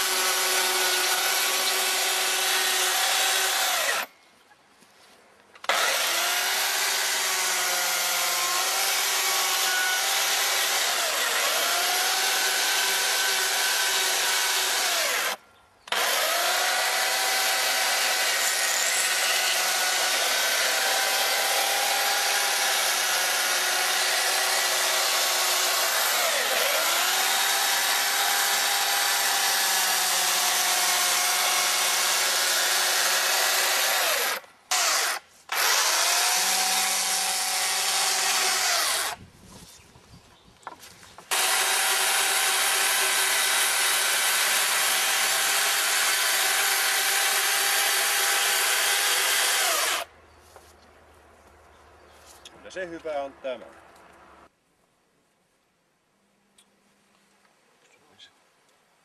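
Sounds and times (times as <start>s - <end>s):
electric chainsaw cutting log: 0.0s - 4.1s, 5.6s - 39.2s, 41.3s - 50.1s.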